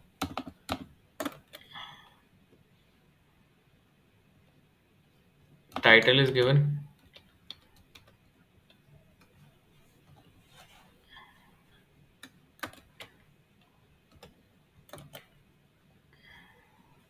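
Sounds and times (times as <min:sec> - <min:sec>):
keyboard clicks: 0:00.2 - 0:01.7, 0:07.0 - 0:09.4, 0:12.2 - 0:13.2, 0:14.1 - 0:15.3
computer mouse clicks: 0:07.0 - 0:09.5, 0:12.2 - 0:13.2, 0:14.1 - 0:15.4.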